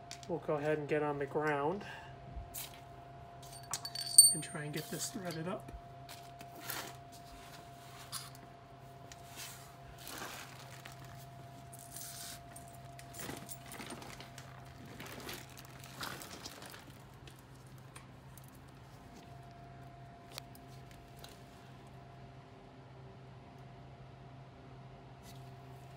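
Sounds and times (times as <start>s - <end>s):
faint steady hum: 0.0s - 25.9s
light metal clinks: 3.4s - 4.7s
plastic bag rustling: 9.2s - 19.2s.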